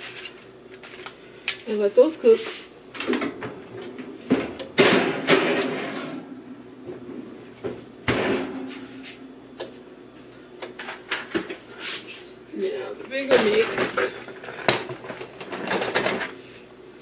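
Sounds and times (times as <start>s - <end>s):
sharp kitchen knocks: 4.3s - 5.8s, 8.1s - 8.6s.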